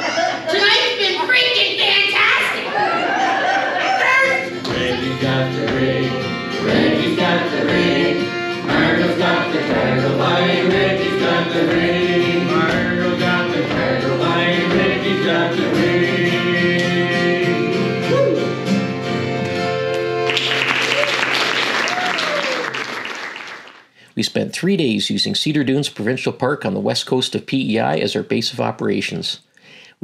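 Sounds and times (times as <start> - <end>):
acoustic guitar: 0.0 - 22.5
several voices singing together: 4.5 - 18.1
accordion: 4.6 - 18.0, 18.8 - 20.3.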